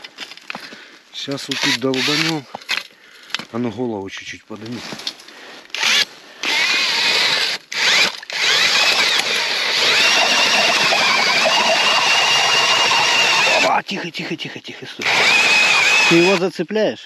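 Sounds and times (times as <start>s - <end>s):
power drill ice auger whining: 1.5s - 2.4s, 5.7s - 13.7s, 15.0s - 16.5s.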